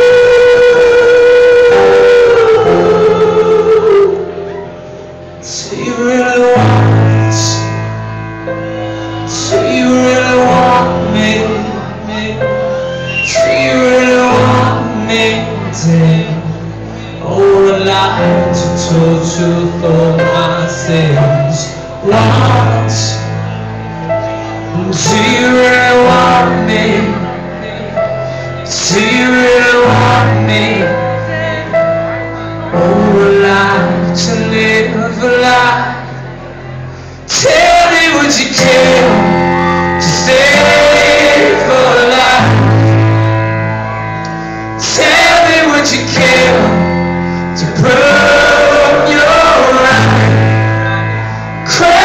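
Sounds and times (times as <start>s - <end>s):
person singing: 0.0s - 52.0s
low acoustic rock chords: 13.5s - 52.0s.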